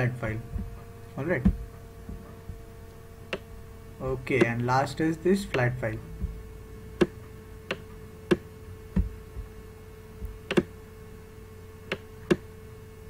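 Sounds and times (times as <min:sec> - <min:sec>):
faint steady hum: 0:00.0 - 0:13.0
computer mouse clicking: 0:10.5 - 0:10.7.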